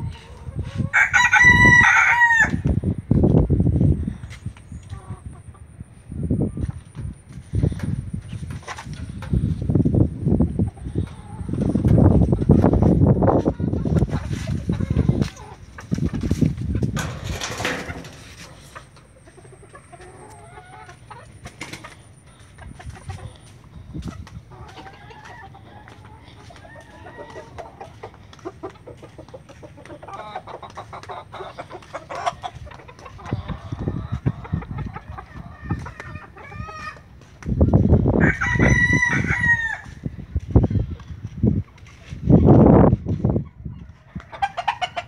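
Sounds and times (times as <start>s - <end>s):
roosters clucking: 0.0s - 45.0s
rooster crowing: 0.9s - 2.7s, 38.2s - 40.0s.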